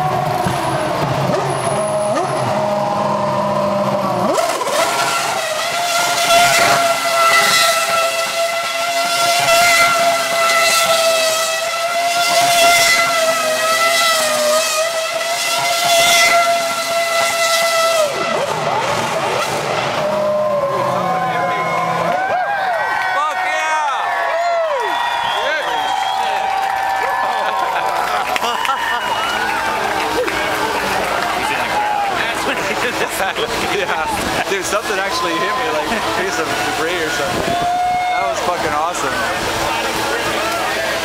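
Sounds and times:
racing car engine revving: 0:00.0 - 0:22.4, 0:24.7 - 0:41.0
tyres spinning on tarmac: 0:24.9 - 0:41.0.

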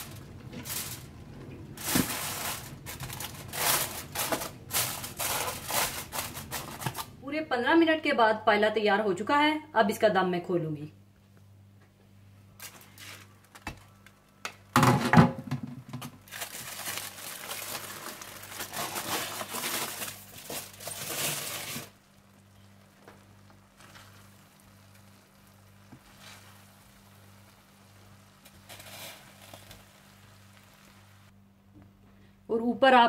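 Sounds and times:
crackling rustling noise: 0:00.0 - 0:07.2, 0:12.6 - 0:14.7, 0:16.2 - 0:31.4
faint steady hum: 0:00.0 - 0:33.0.

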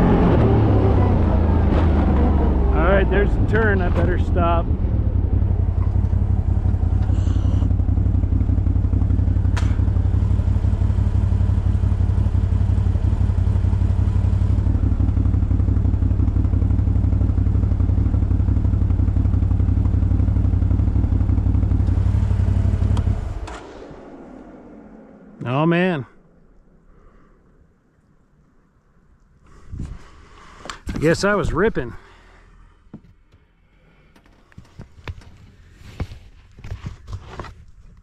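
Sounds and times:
vehicle clattering and thudding: 0:00.0 - 0:10.4
engine running hard: 0:00.0 - 0:25.9.

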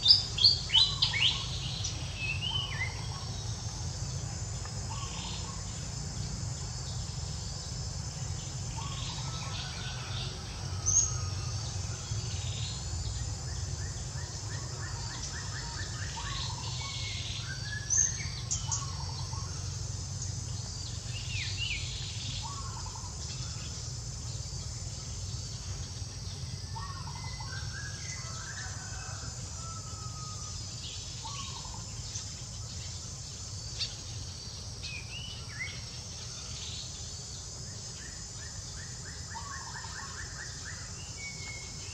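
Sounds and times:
insects buzzing: 0:00.0 - 0:41.9.

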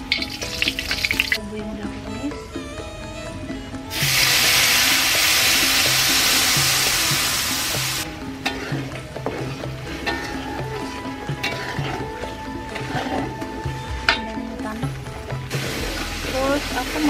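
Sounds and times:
metal ladle scraping wok: 0:00.0 - 0:01.4, 0:03.9 - 0:14.4
paste sizzling in hot oil: 0:00.0 - 0:01.4, 0:03.9 - 0:12.1, 0:15.5 - 0:17.0.

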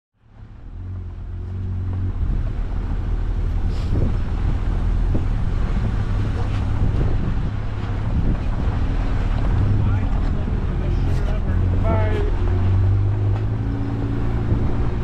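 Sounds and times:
vehicle engine running: 0:00.2 - 0:15.0
wind noise on microphone: 0:00.8 - 0:15.0.

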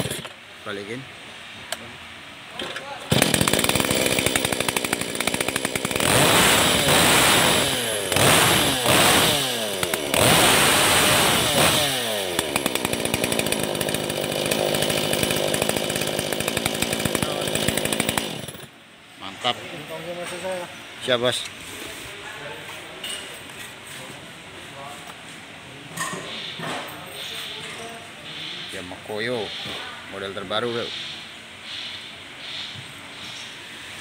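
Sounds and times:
chainsaw revving and idling: 0:00.0 - 0:00.4, 0:03.1 - 0:18.7.

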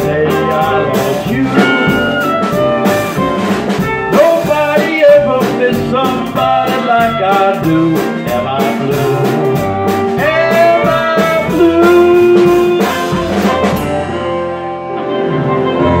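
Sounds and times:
country band playing: 0:00.0 - 0:16.0
drum kit: 0:00.0 - 0:16.0
final guitar chord ringing: 0:01.5 - 0:03.8.

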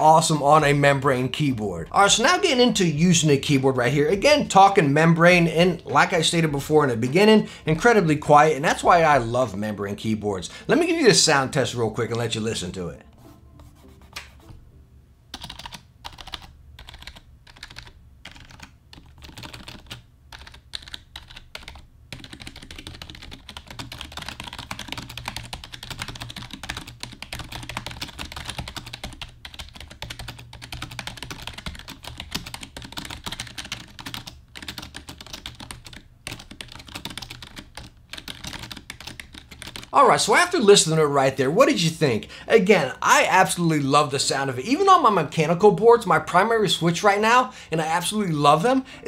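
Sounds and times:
quiet keyboard typing: 0:15.3 - 0:40.8.

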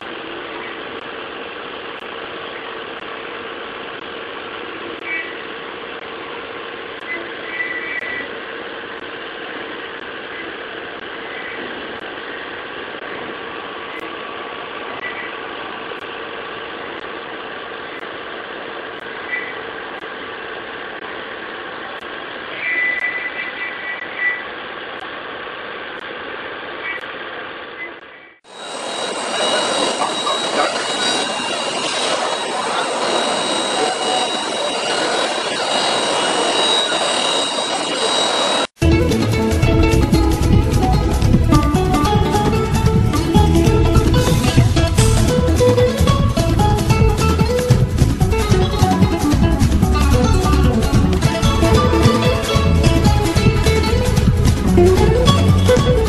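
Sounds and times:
cutter squealing: 0:28.5 - 0:38.7
carving spindle cutting harshly: 0:28.6 - 0:38.7
milling machine cutting metal: 0:28.6 - 0:38.7.

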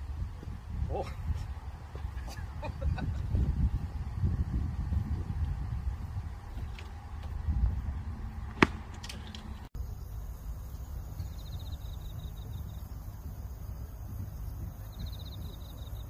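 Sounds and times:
golf club striking ball: 0:08.5 - 0:09.5
insect trilling: 0:09.8 - 0:16.0.

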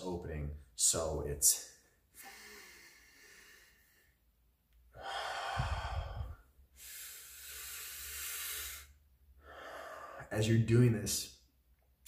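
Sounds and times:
man breathing deeply: 0:02.1 - 0:10.3.

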